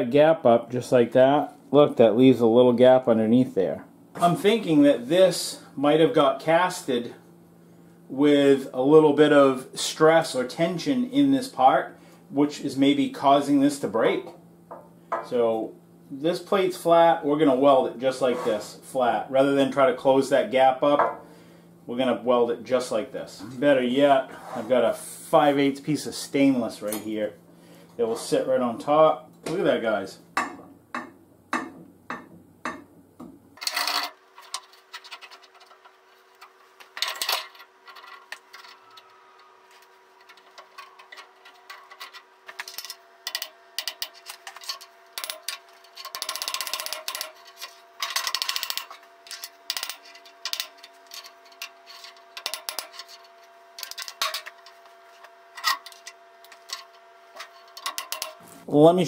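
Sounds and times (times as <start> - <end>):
metal rubbing: 18.2 - 18.8, 33.6 - 58.7
metal clamps clinking and scraping: 33.6 - 58.6.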